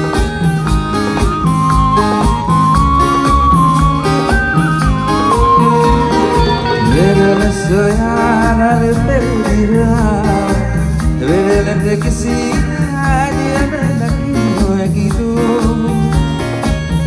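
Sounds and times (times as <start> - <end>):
keyboards: 0.0 - 17.0
percussion beat: 0.0 - 17.0
violin: 0.4 - 9.1
man singing into microphone: 5.8 - 16.4.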